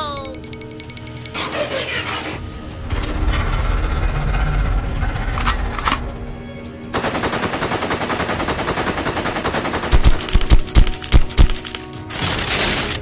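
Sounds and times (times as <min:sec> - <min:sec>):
machine-gun fire: 0:07.0 - 0:11.8.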